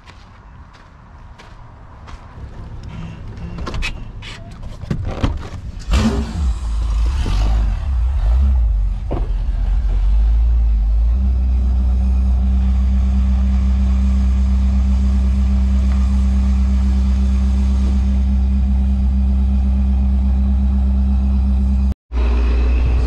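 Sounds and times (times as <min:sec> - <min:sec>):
engine idling: 0:05.8 - 0:23.0.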